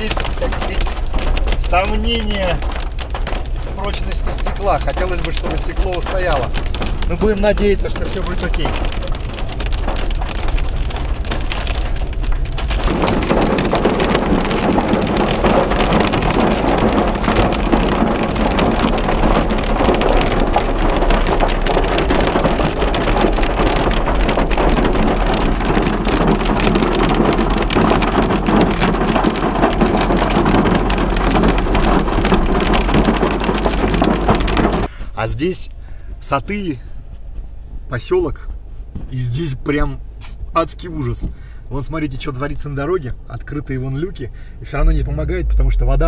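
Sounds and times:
hail pelting car roof: 0:00.0 - 0:35.6
road and engine hum: 0:00.0 - 0:46.0.

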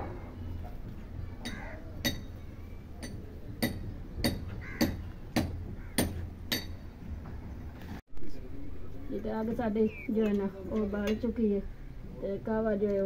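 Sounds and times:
hammer on chisel clinking: 0:01.4 - 0:02.4, 0:03.0 - 0:06.8.

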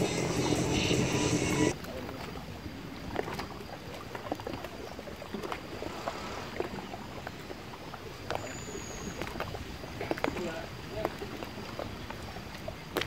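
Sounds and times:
water splashing around kayak: 0:00.0 - 0:13.0.

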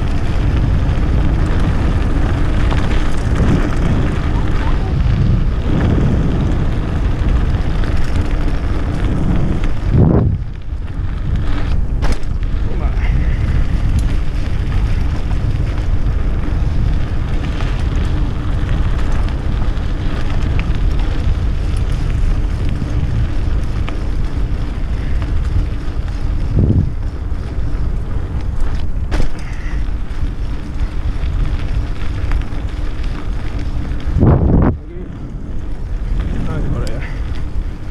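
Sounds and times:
wind rushing over microphone: 0:00.0 - 0:37.9
bike knocking: 0:11.4 - 0:12.9, 0:13.5 - 0:34.6.

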